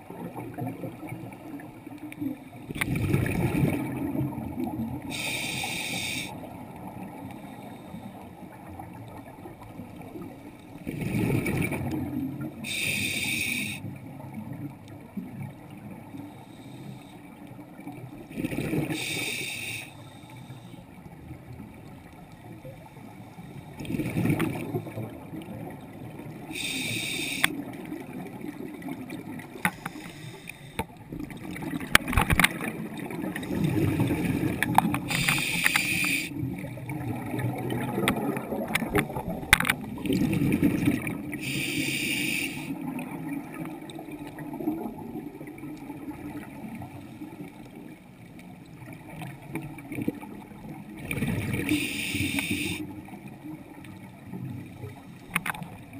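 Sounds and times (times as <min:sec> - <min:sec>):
exhaled bubbles gurgling: 0:00.0 - 0:07.8, 0:08.4 - 0:16.3, 0:17.6 - 0:19.8, 0:23.8 - 0:55.9
hissing inhale through regulator: 0:05.1 - 0:06.4, 0:07.3 - 0:08.4, 0:12.6 - 0:13.9, 0:16.2 - 0:17.4, 0:18.8 - 0:20.9, 0:26.5 - 0:27.6, 0:29.6 - 0:31.0, 0:33.4 - 0:36.4, 0:41.4 - 0:42.7, 0:51.6 - 0:52.9.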